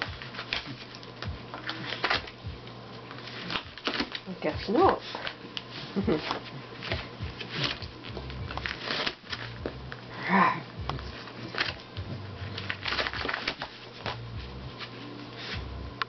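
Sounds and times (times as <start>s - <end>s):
dog tearing cardboard box: 0.0s - 2.4s, 3.2s - 4.2s, 6.2s - 9.6s, 11.1s - 11.8s, 12.5s - 14.2s.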